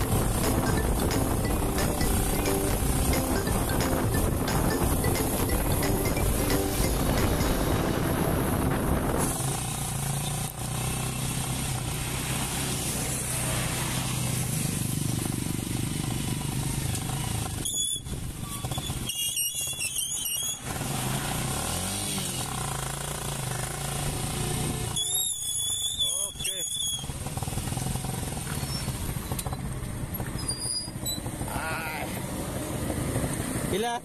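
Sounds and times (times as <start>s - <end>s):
motorcycle engine running: 0.0s - 17.6s, 22.4s - 24.8s, 27.1s - 30.3s.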